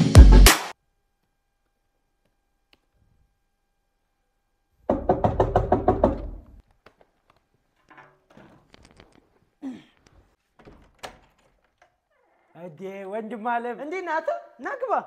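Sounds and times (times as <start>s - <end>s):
rapid knocking on door: 4.9s - 6.4s.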